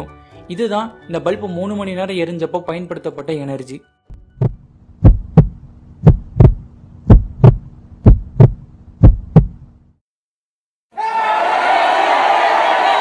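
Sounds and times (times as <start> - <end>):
heartbeat thumps: 4.1 - 9.7
steady low hum: 4.2 - 9.9.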